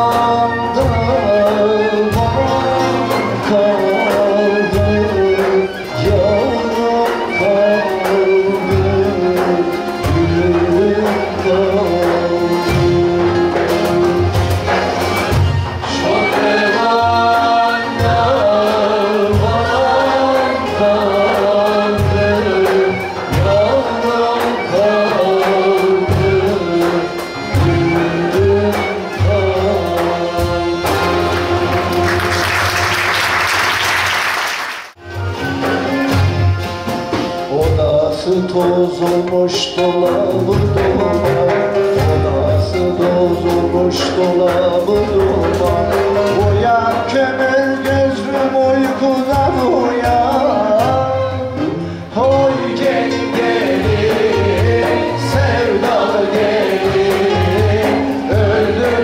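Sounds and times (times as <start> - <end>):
man singing: 0.0 - 32.3, 37.3 - 59.0
wooden flutes: 0.0 - 34.2
frame drum beat: 0.0 - 59.0.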